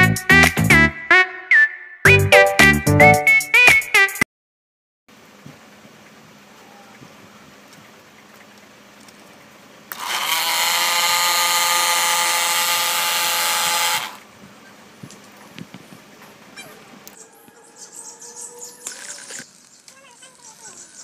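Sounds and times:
small motor spinning propeller whine: 0:09.9 - 0:14.3.

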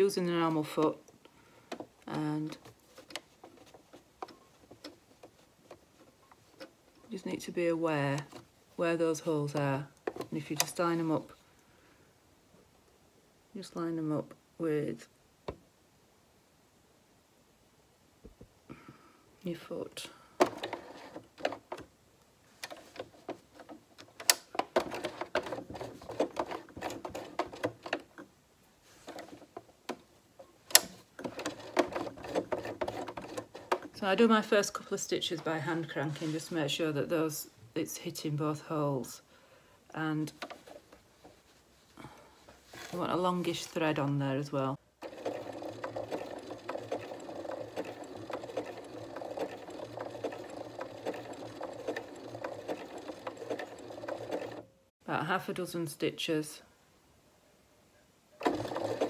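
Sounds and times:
sewing machine motor hum: 0:30.7 - 0:34.0, 0:45.0 - 0:54.7, 0:58.4 - 0:59.0
sewing machine needle clicks: 0:45.0 - 0:54.6, 0:58.4 - 0:59.0.

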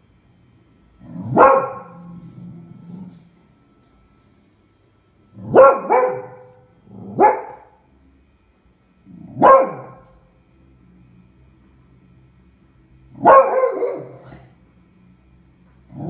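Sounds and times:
dog barking sharply: 0:09.4 - 0:10.0, 0:13.2 - 0:14.2.

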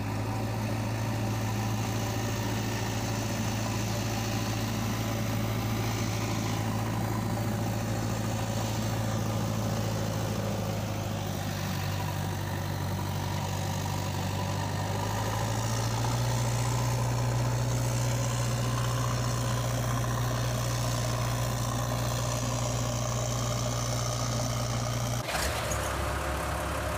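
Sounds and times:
heavy engine idling: 0:00.0 - 0:26.9.

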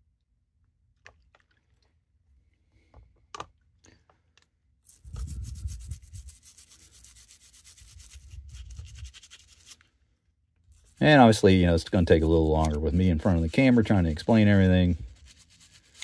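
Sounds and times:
toothbrush scrubbing knife: 0:04.9 - 0:09.8, 0:10.7 - 0:16.0.

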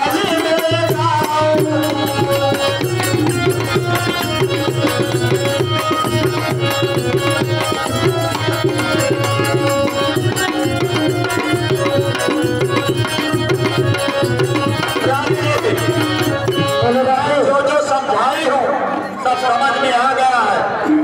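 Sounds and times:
fast tabla drumming: 0:00.0 - 0:18.2
sustained melodic notes: 0:01.7 - 0:18.8.

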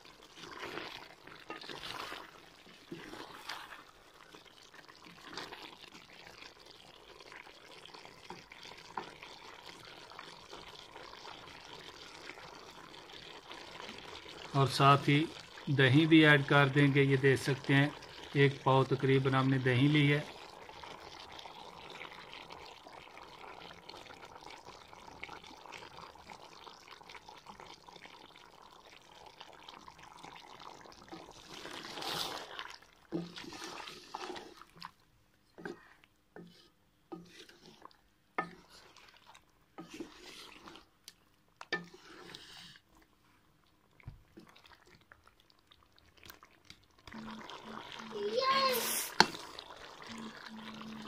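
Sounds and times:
meat sizzling in a pot: 0:00.0 - 0:42.9, 0:44.0 - 0:51.0
spatula scraping metal pot: 0:00.5 - 0:02.3, 0:33.1 - 0:34.6, 0:35.5 - 0:39.0, 0:39.8 - 0:40.9, 0:41.7 - 0:42.8.

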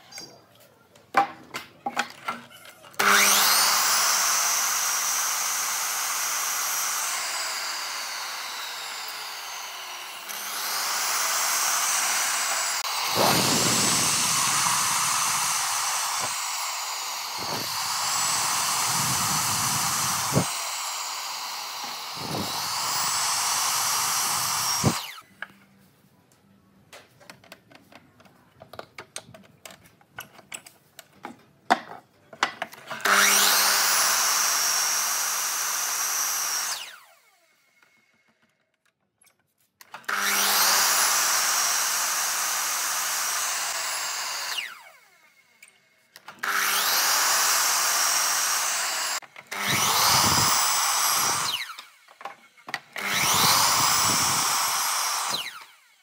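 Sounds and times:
miter saw cutting wood: 0:02.9 - 0:25.3, 0:32.9 - 0:38.3, 0:39.9 - 0:45.6, 0:46.2 - 0:56.0.

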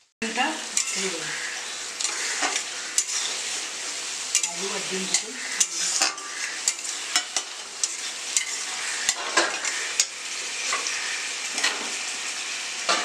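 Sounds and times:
curry sizzling: 0:00.0 - 0:13.0
spatula clinking and scraping pan: 0:00.7 - 0:12.0.

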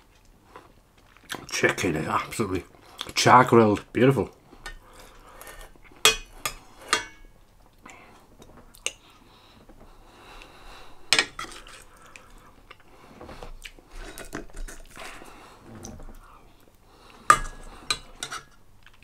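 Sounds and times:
metal spoon clinking on dish: 0:06.1 - 0:07.3.

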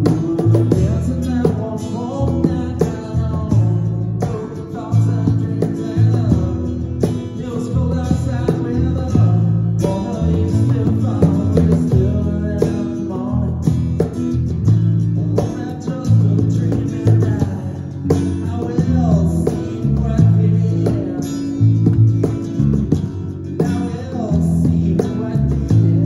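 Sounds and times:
person singing lead vocal: 0:00.0 - 0:14.3, 0:15.0 - 0:26.0
electric bass: 0:00.0 - 0:26.0
strummed acoustic guitar: 0:00.0 - 0:26.0.

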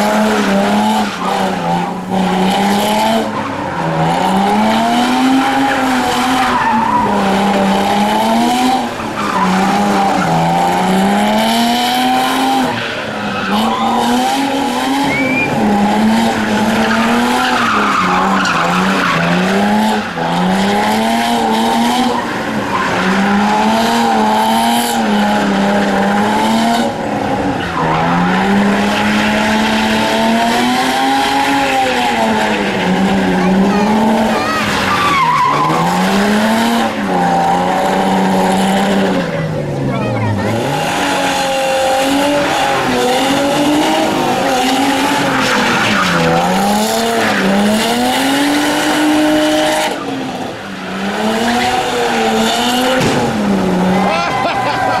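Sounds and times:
car engine revving: 0:00.0 - 0:55.0
tyres squealing on tarmac: 0:03.2 - 0:10.6, 0:12.0 - 0:25.2, 0:27.3 - 0:30.3, 0:31.0 - 0:36.4, 0:39.1 - 0:55.0.

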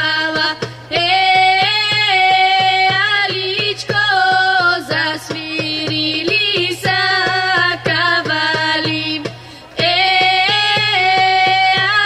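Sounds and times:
hand drum beat: 0:00.0 - 0:12.0
women singing folk song: 0:00.0 - 0:12.0.

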